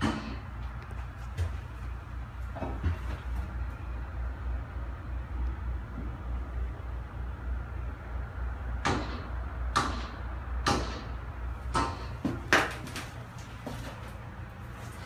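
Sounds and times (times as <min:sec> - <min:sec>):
steady low hum: 0:00.0 - 0:15.0
footsteps: 0:00.6 - 0:03.7, 0:11.9 - 0:15.0.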